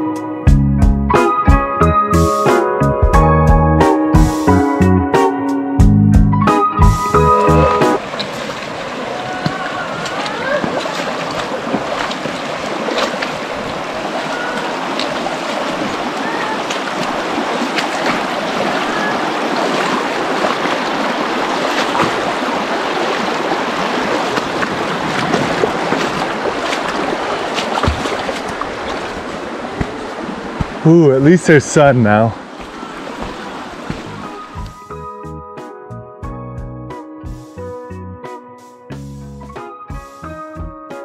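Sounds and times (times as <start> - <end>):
creek running over rocks: 8.0 - 34.8.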